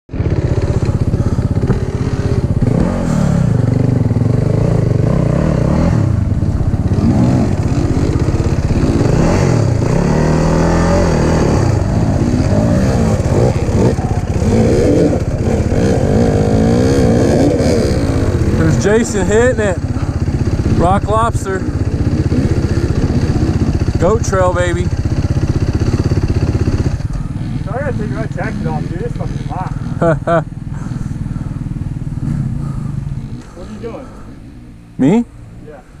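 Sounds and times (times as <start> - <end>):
dirt bike engines revving: 0.1 - 36.0.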